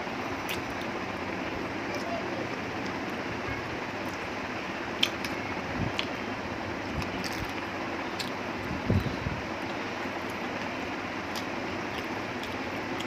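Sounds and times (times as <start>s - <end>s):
person chewing and gnawing: 0.4s - 1.0s, 5.0s - 6.2s, 6.9s - 10.4s, 11.2s - 13.0s.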